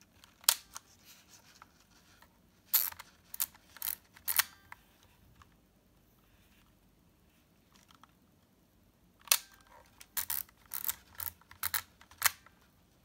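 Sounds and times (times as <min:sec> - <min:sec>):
film advance wheel ratcheting: 0:10.2 - 0:12.4.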